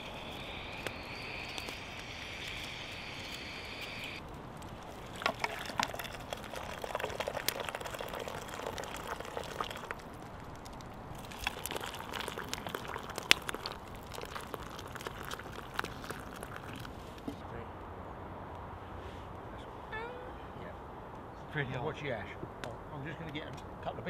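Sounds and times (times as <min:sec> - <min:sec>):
campfire crackles: 0:00.0 - 0:17.3
water pouring from kettle: 0:04.6 - 0:17.2
stick stirring soup in tin: 0:04.8 - 0:17.0.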